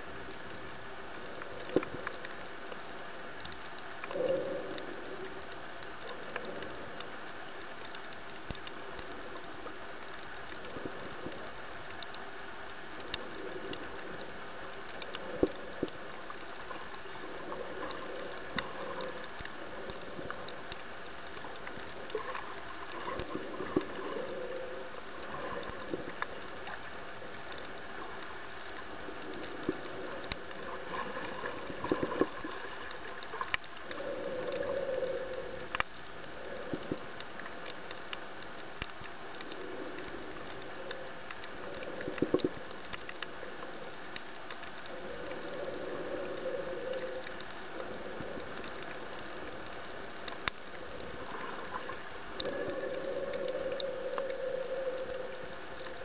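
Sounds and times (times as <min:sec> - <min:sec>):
bubbling gurgles: 0:13.0 - 0:37.3, 0:44.8 - 0:56.0
underwater hiss: 0:13.1 - 0:37.5, 0:44.9 - 0:56.0.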